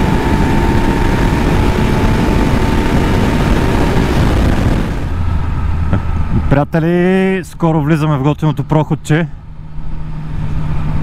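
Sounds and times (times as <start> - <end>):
wind rush on microphone: 0.0 - 5.4
motorcycle engine drone: 0.0 - 7.6, 8.4 - 11.0.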